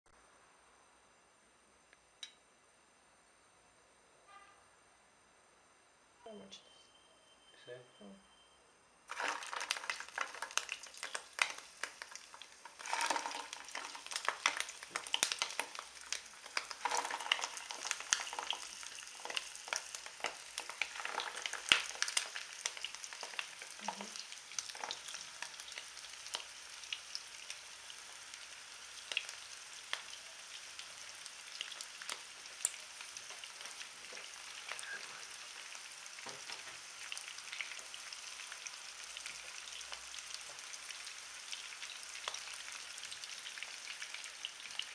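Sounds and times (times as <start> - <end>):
sausages sizzling and crackling in pan: 9.1 - 44.9.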